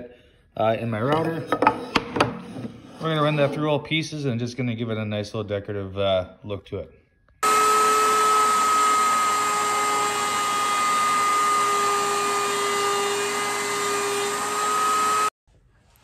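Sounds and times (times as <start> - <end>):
router whining while cutting wood: 7.4 - 15.4.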